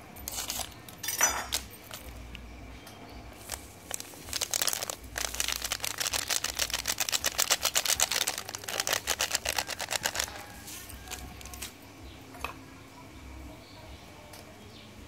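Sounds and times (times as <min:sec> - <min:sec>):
granules rattling: 0:03.4 - 0:10.5, 0:11.1 - 0:11.7
seasoning packet shaken and tapped: 0:03.4 - 0:11.7.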